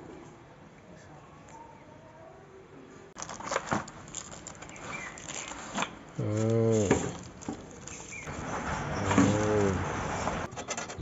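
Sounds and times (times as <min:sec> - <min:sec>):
plastic wrap crinkling: 0:03.2 - 0:09.8.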